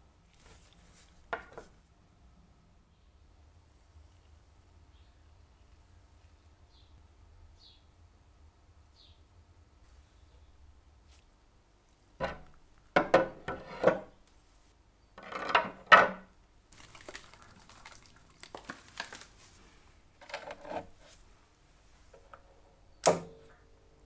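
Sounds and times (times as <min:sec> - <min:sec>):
water rustling: 0:16.7 - 0:19.8.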